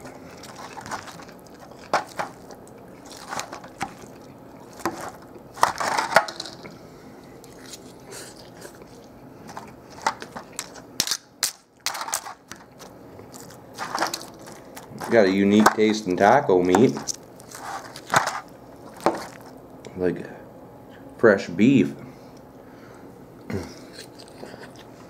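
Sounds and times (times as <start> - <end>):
fork crunching tortilla chips: 0.0 - 6.8, 7.4 - 16.1, 16.8 - 19.6, 23.9 - 24.9.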